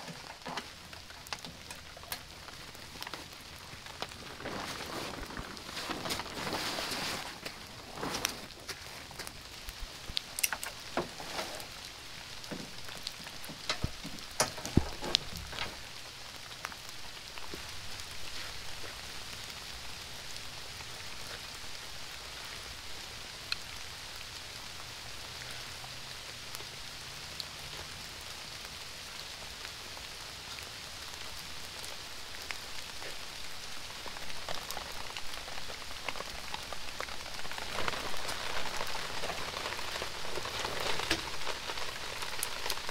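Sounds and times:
plastic tarp clicks and crackles: 0.0s - 19.6s, 31.2s - 42.9s
rain hissing: 0.0s - 42.9s.

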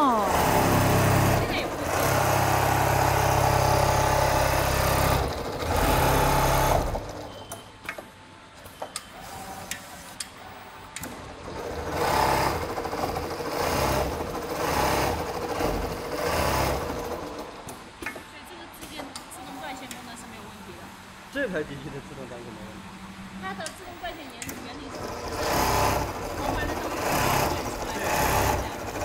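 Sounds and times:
sewing machine stitching: 0.3s - 7.5s, 11.0s - 17.7s, 24.5s - 29.0s.

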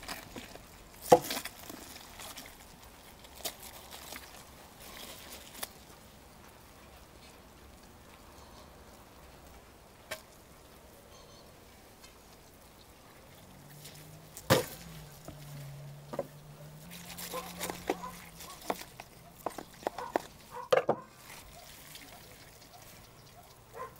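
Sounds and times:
knife cutting meat: 16.9s - 20.3s.

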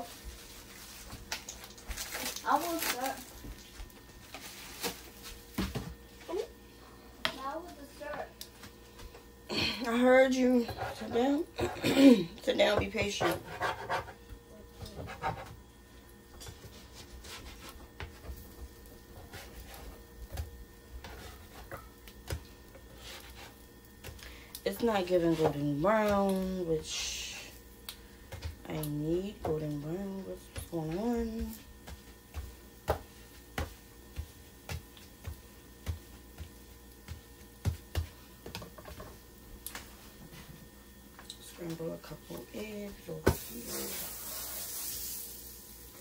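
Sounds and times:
spatula scraping and tapping griddle: 16.4s - 24.2s, 30.5s - 40.5s
spatula tapping on griddle: 30.5s - 39.2s.

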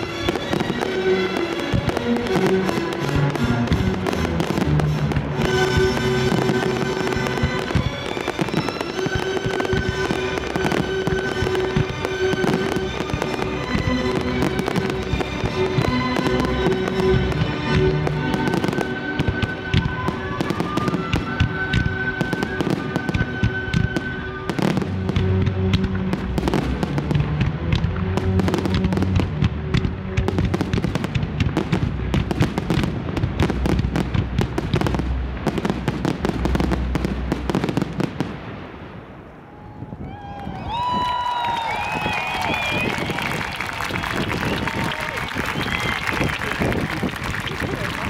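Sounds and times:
music: 0.0s - 37.9s
fireworks bangs and crackles: 0.0s - 48.0s.

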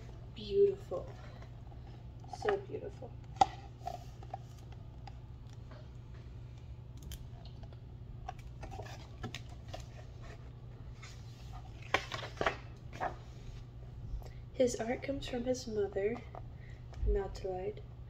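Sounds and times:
steady low hum: 0.0s - 18.0s
book pages turning: 7.5s - 13.7s.

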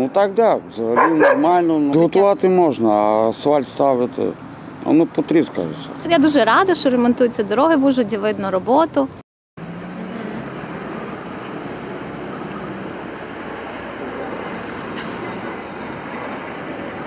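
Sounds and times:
dump truck engine drone: 9.6s - 17.0s.

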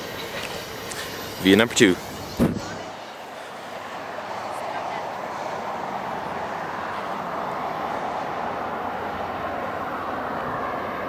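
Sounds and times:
train cars rolling on rails: 0.0s - 11.0s.

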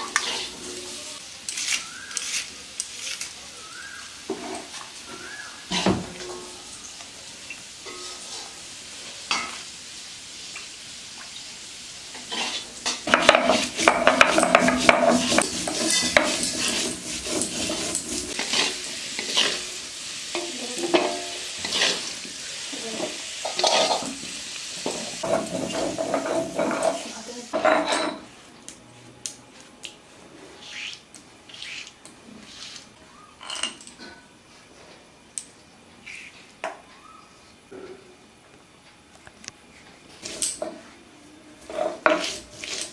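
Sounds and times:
utensil scraping and clinking on pan: 0.0s - 3.2s, 7.8s - 8.5s, 12.2s - 22.2s, 22.9s - 24.2s, 24.8s - 28.3s, 41.6s - 42.9s
food sizzling in hot oil: 0.0s - 28.3s, 41.7s - 42.9s.

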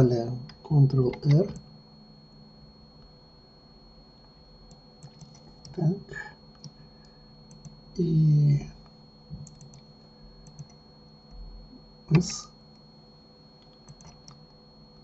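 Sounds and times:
keyboard and mouse clicks: 5.0s - 5.8s, 9.4s - 9.9s, 10.5s - 10.8s, 13.6s - 14.4s.

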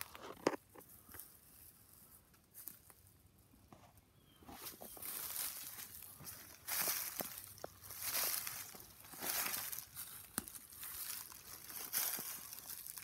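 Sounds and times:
footsteps crunching through leaves: 4.4s - 13.0s.

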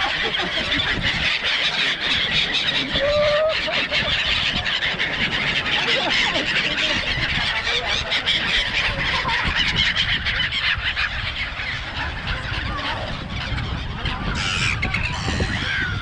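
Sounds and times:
seagulls squealing: 0.0s - 16.0s.

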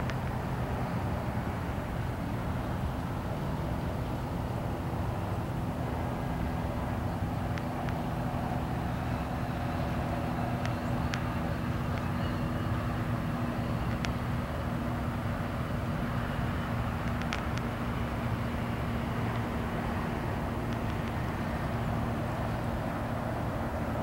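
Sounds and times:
low rumble of road traffic: 0.0s - 24.0s
faint sharp ticks: 7.5s - 8.1s, 9.8s - 12.8s, 13.5s - 14.3s, 17.0s - 18.3s, 20.6s - 21.3s.

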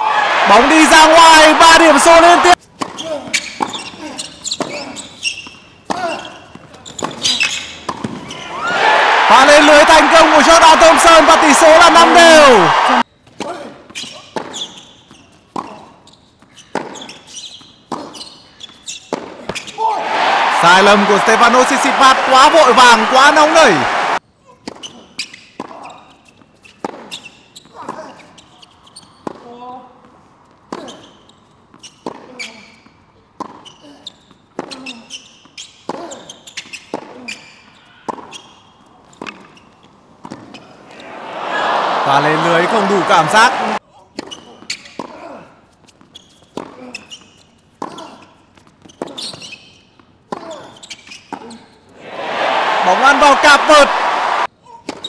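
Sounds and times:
rackets striking tennis ball: 2.7s - 8.4s
short high shoe squeaks: 2.8s - 8.6s, 13.2s - 19.8s, 24.6s - 29.5s, 30.7s - 40.8s, 44.2s - 51.9s
tennis ball hit by rackets: 5.8s - 8.3s.

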